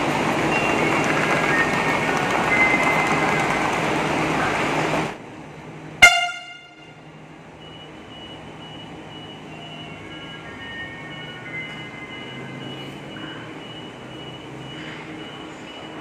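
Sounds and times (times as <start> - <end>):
low steady train hum: 0.0 - 16.0
train platform noise: 0.0 - 16.0
short loud train horn toot: 6.0 - 7.0.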